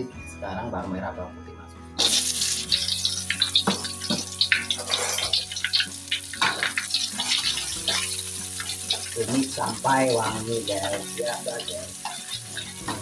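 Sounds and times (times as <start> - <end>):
food sizzling in hot oil: 2.0 - 13.0
spatula stirring in wok: 11.9 - 13.0.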